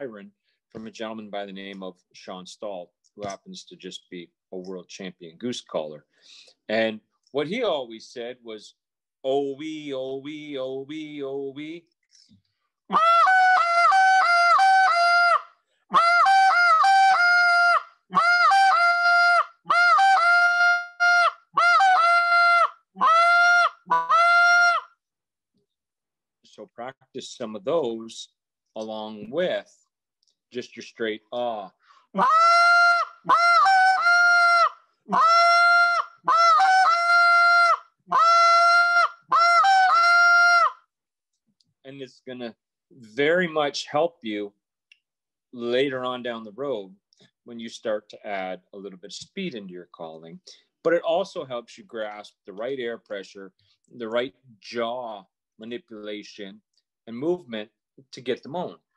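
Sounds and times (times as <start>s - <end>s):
reed goose call: 12.9s - 24.9s, 32.2s - 40.8s.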